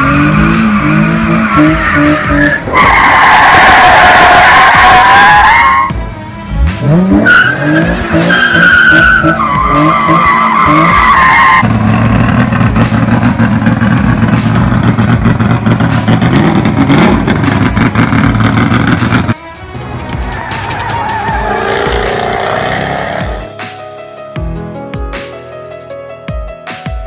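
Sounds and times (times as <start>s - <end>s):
car tyres squealing: 0.0s - 5.9s, 7.1s - 19.3s, 20.1s - 23.4s
race car engine low rumble: 5.8s - 23.5s
car engine running: 9.2s - 23.5s.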